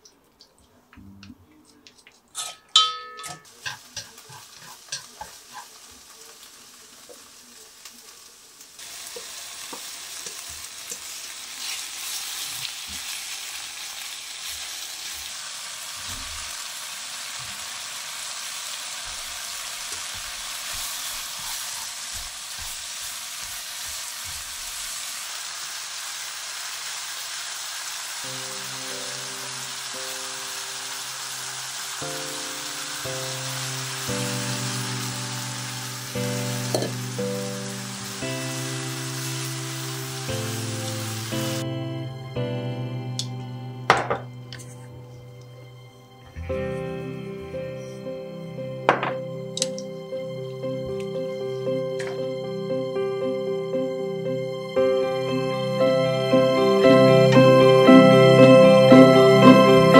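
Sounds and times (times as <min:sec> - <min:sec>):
stirring clicks: 0:00.0 - 0:02.8
utensils clinking against metal bowl: 0:01.7 - 0:05.7
food sizzling in a pan: 0:02.0 - 0:44.8, 0:46.4 - 0:59.9.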